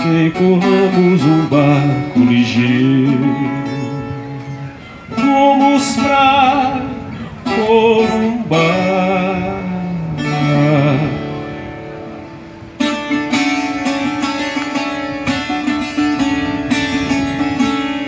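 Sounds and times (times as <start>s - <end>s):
man singing with vibrato: 0.0s - 13.3s
fast plucked guitar: 0.0s - 18.0s.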